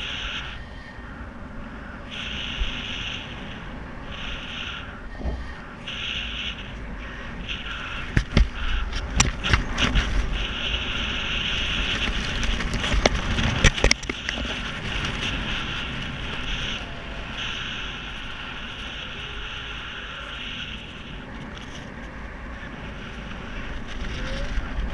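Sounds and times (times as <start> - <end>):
wind buffeting microphone: 0.0 - 24.9
sharp clicks and knocks: 8.0 - 10.3, 11.9 - 15.2.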